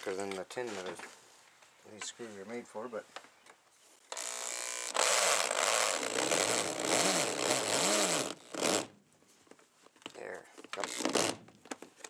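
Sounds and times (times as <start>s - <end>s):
power drill driving screw into steel: 4.1s - 8.9s.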